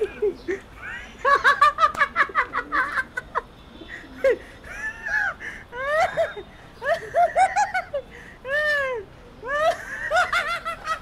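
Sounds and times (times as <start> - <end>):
person laughing high-pitched: 4.0 - 11.0.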